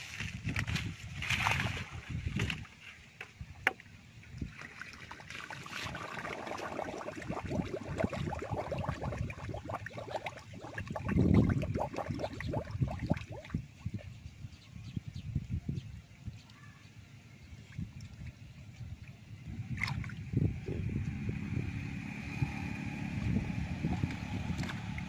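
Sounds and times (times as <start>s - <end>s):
hands splashing in shallow water: 1.2s - 2.1s, 19.8s - 20.2s.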